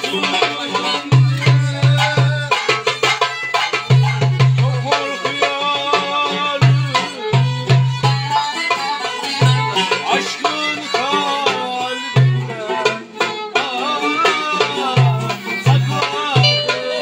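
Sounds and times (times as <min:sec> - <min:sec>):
darbuka deep strokes: 0:16.3 - 0:17.0
plucked lute: 0:16.4 - 0:17.0
violin gliding melody: 0:16.4 - 0:17.0.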